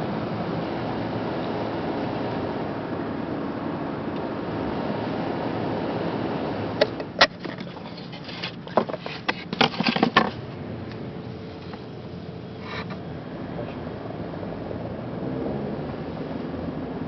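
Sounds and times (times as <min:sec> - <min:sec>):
steady background noise: 0:00.0 - 0:17.0
paint box clicks and knocks: 0:08.7 - 0:10.4.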